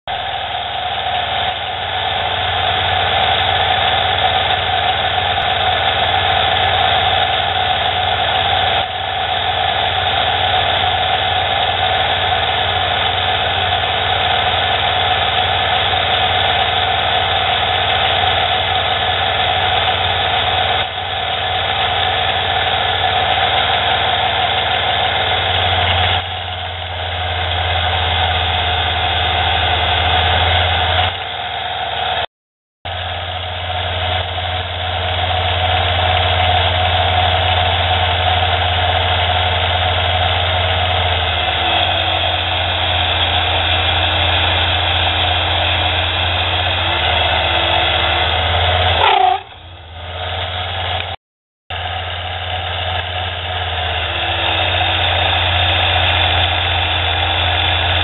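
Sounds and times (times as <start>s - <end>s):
deep hum: 32.9s - 58.0s
lathe whine and hiss: 53.9s - 58.0s.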